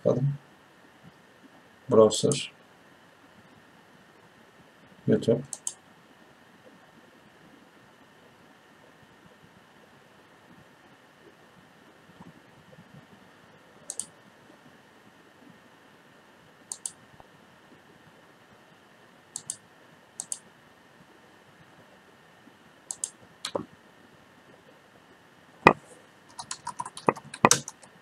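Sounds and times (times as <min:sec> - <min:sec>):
computer mouse clicking: 0:05.5 - 0:05.8, 0:13.9 - 0:14.1, 0:16.7 - 0:17.0, 0:19.4 - 0:19.6, 0:20.2 - 0:20.4, 0:22.9 - 0:23.6, 0:25.7 - 0:27.9
keyboard typing: 0:05.5 - 0:05.8, 0:13.9 - 0:14.1, 0:16.7 - 0:17.0, 0:19.4 - 0:19.6, 0:20.2 - 0:20.4, 0:22.9 - 0:23.7, 0:25.7 - 0:28.0.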